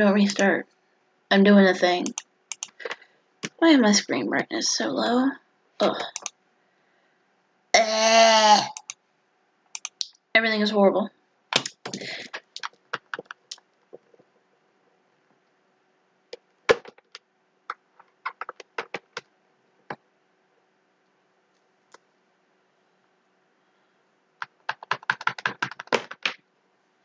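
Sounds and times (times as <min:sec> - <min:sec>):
computer keyboard typing: 0:02.0 - 0:03.6, 0:06.0 - 0:06.3, 0:09.8 - 0:10.1, 0:11.6 - 0:14.2, 0:18.2 - 0:19.3, 0:24.4 - 0:26.4.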